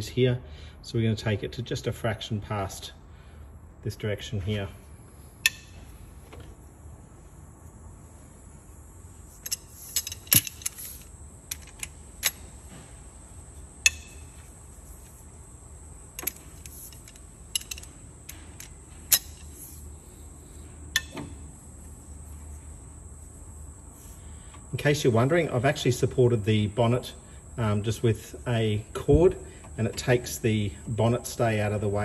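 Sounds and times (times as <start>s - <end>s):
high insect hum: 2.5s - 32.0s
metal socket clinking on bolts: 9.4s - 12.5s, 16.2s - 19.6s, 21.0s - 21.3s.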